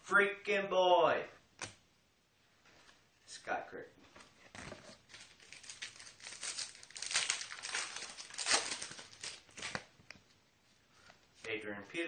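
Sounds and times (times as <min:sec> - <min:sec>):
wrapper crinkling and tearing: 0:05.1 - 0:09.9.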